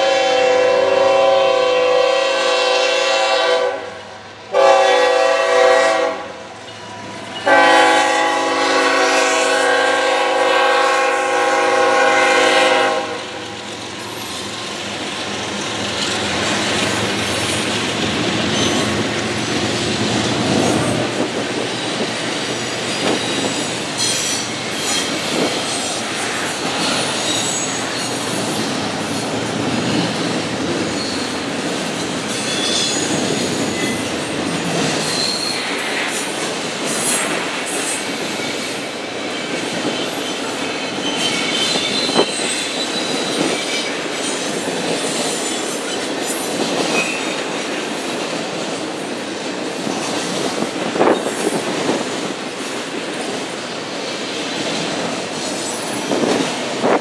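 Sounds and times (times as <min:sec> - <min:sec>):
freight train wheels rumbling: 0:00.0 - 0:57.0
high wheel squeals: 0:18.4 - 0:19.6, 0:20.7 - 0:29.3, 0:30.9 - 0:31.4, 0:32.3 - 0:34.3, 0:35.0 - 0:35.9, 0:39.4 - 0:44.0.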